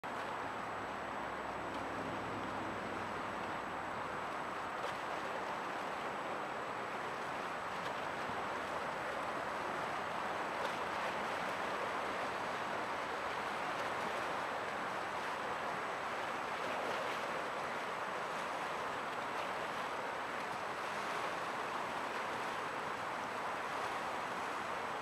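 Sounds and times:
waterfront rushing noise: 0.0 - 25.0.

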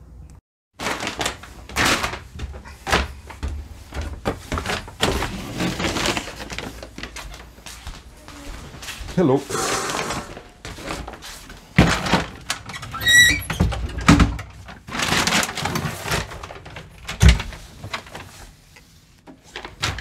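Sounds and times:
door opening and shutting: 9.5 - 10.5, 12.6 - 14.3.

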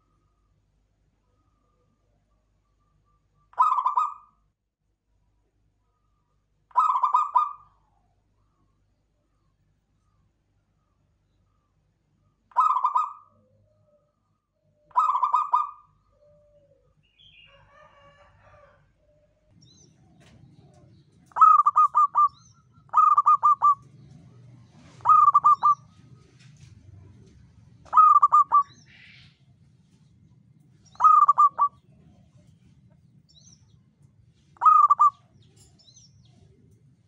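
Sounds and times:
faint low hum: 0.0 - 37.0
doves cooing: 3.5 - 4.2, 6.7 - 7.8, 12.5 - 14.1, 14.8 - 29.3, 30.9 - 32.8, 34.6 - 35.4.

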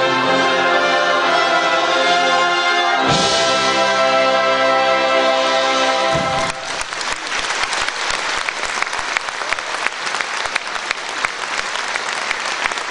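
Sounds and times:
brass band final chord: 0.0 - 6.8
audience applauding: 6.1 - 12.9.

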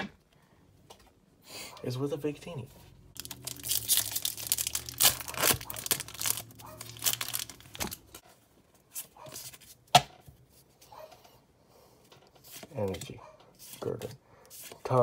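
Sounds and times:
cards rustling: 3.1 - 8.2
foil wrapper tearing and crinkling: 3.2 - 8.2.

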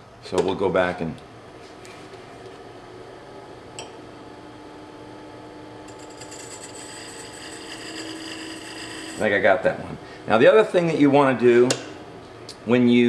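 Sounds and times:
wood lathe motor hum: 5.9 - 9.3
tool scraping spinning wood: 5.9 - 9.5.

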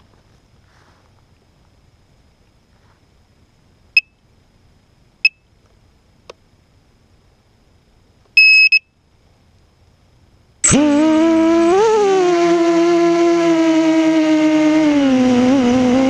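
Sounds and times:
faint click: 5.6 - 6.4
quadcopter electronic beeps: 8.4 - 8.8.

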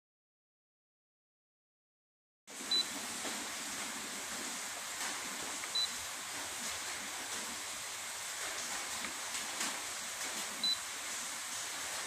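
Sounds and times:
steady background hiss: 2.5 - 12.0
short high-pitched beeps: 5.7 - 6.0.

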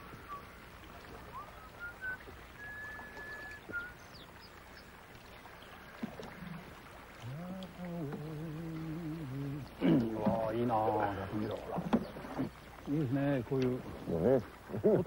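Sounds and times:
whistled notes: 0.0 - 0.6, 1.3 - 4.2
water lapping around hull: 0.0 - 15.0.

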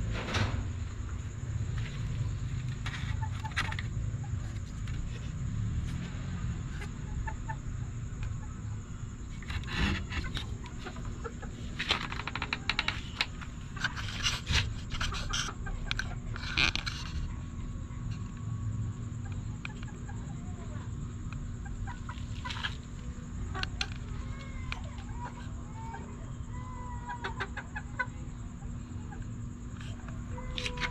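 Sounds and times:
rustling and scraping: 0.0 - 7.0, 9.3 - 18.4, 22.0 - 25.6
chickens clucking: 1.0 - 30.9.

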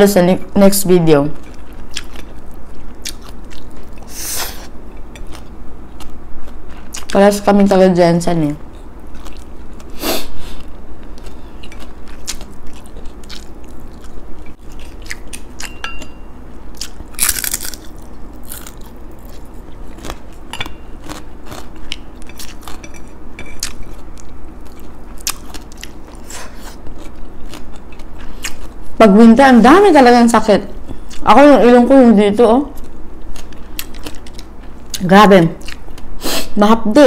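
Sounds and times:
person chewing crunchy food: 1.3 - 7.2, 8.7 - 29.0, 32.8 - 36.1.

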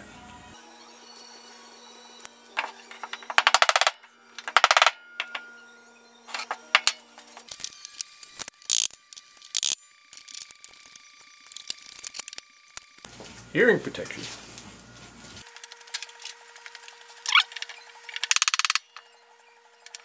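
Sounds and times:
metallic clicking and rattling: 2.5 - 5.5, 6.3 - 10.9, 17.3 - 19.1
steel parts clunking on workbench: 2.5 - 5.5, 6.3 - 7.6.

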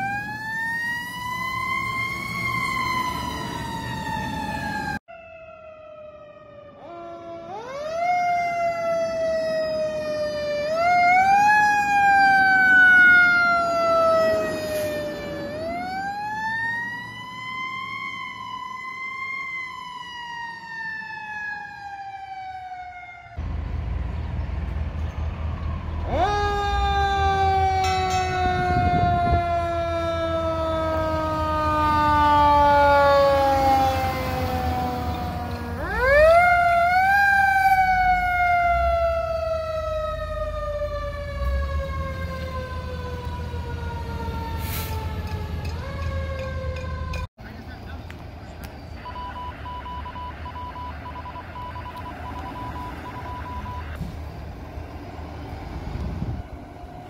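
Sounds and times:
fire engine siren wailing: 0.0 - 57.0
truck engine rumbling: 23.4 - 57.0.

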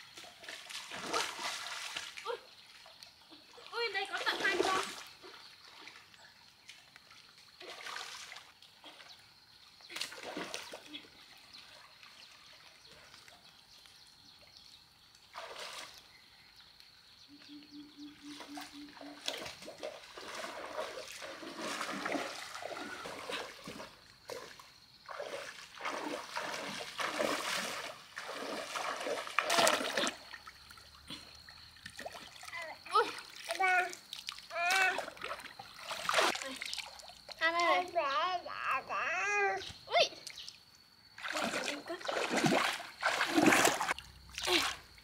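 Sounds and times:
hands splashing in muddy water: 18.9 - 30.5, 41.2 - 44.9.

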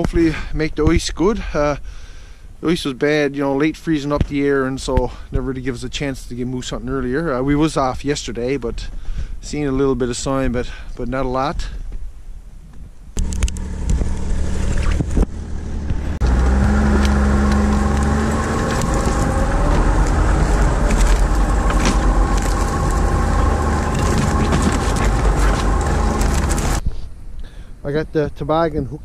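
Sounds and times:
knocks and rattles: 13.2 - 26.8
snowmobile engine running: 13.2 - 26.8.

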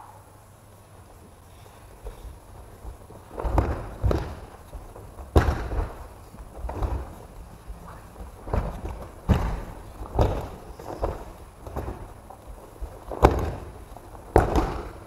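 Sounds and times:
bodies thudding onto foam mats: 3.0 - 7.2, 8.4 - 15.0.

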